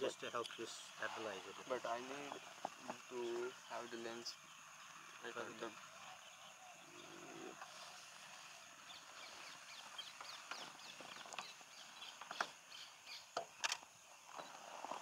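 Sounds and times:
high insect drone: 0.0 - 15.0
small birds chirping: 0.0 - 15.0
sharp clicks: 13.4 - 13.8.

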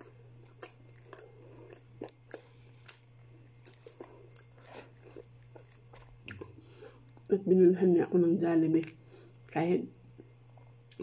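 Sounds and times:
person chewing crunchy food: 0.0 - 7.3.

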